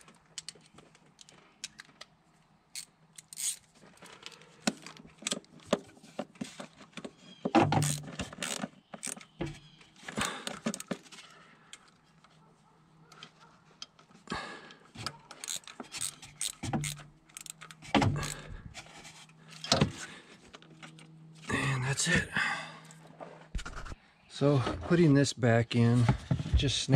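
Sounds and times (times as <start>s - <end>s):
hand ratchet clicking: 2.8s - 3.6s, 7.8s - 9.3s, 15.3s - 18.5s.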